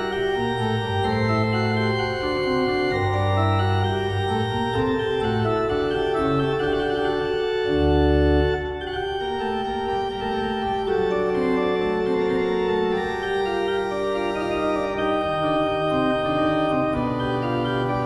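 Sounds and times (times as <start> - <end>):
organ playing slow chords: 0.0 - 18.0.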